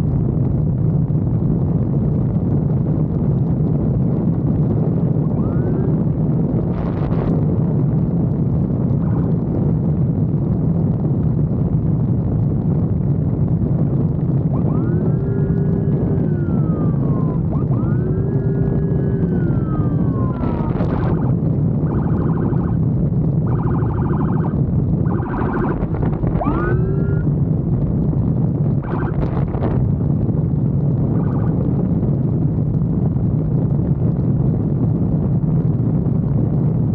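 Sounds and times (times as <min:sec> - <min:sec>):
motorcycle engine and wind rumble: 0:00.0 - 0:36.9
emergency vehicle siren: 0:04.9 - 0:07.3, 0:09.0 - 0:09.4, 0:14.2 - 0:22.8, 0:23.4 - 0:27.3, 0:28.8 - 0:29.8, 0:31.1 - 0:31.8.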